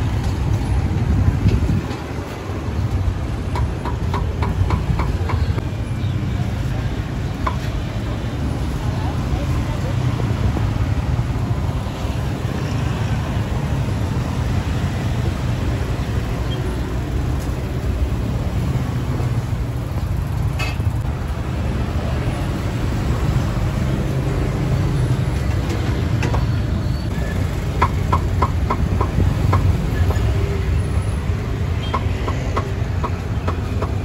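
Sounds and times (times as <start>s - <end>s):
traffic rumble: 0.0s - 34.0s.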